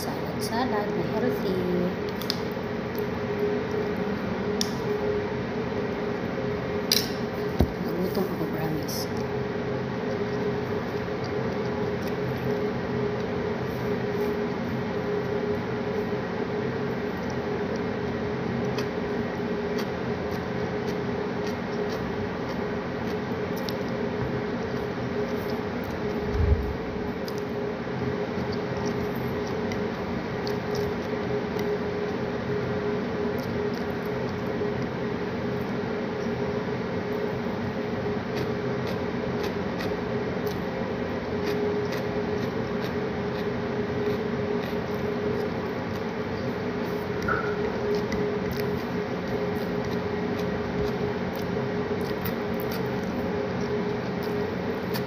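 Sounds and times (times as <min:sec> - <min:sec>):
mechanical hum and hiss: 0:00.0 - 0:55.0
chewing: 0:10.0 - 0:14.6, 0:17.1 - 0:26.4, 0:27.2 - 0:27.5, 0:28.3 - 0:32.6, 0:33.2 - 0:34.9, 0:38.1 - 0:55.0.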